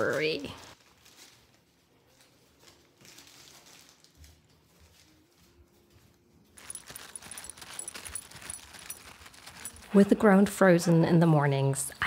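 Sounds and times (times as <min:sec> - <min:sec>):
clothing rustling: 0:00.0 - 0:10.1.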